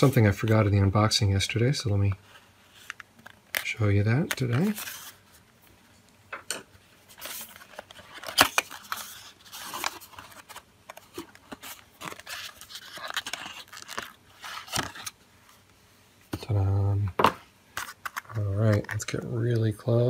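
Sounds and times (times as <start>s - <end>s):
cardboard and plastic scrapes and clicks: 2.7s - 5.2s, 7.1s - 15.2s, 17.2s - 19.2s.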